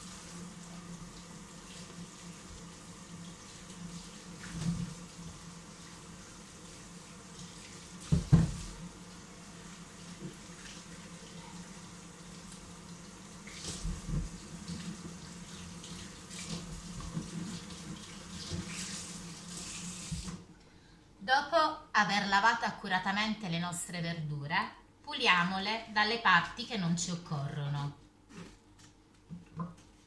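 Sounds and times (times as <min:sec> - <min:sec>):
knocks in the sink: 0:08.1 - 0:08.7.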